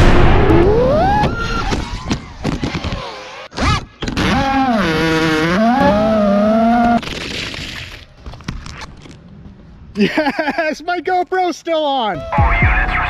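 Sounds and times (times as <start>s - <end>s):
drone motors whining: 0.3s - 7.0s.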